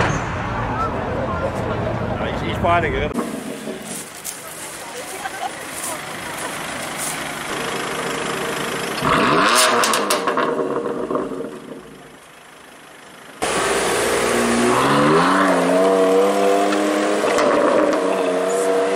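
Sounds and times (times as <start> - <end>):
car engine revving: 3.1 - 4.8, 7.4 - 12.2, 13.4 - 18.9.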